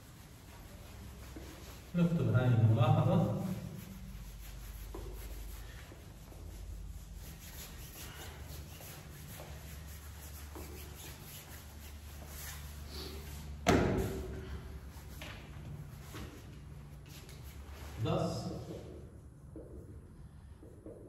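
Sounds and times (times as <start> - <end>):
low room hum: 0.0 - 21.0
eraser rubbing on whiteboard: 3.2 - 13.6.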